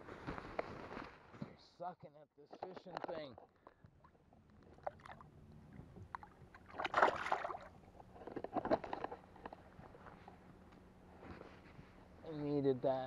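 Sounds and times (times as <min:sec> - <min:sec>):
fish splashing in water: 0:06.2 - 0:07.8.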